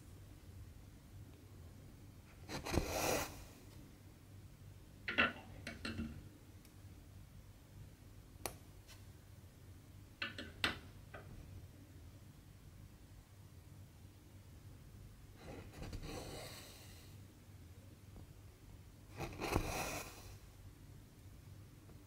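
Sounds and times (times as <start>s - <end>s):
thread drawn through fabric: 2.4s - 3.5s, 19.1s - 20.4s.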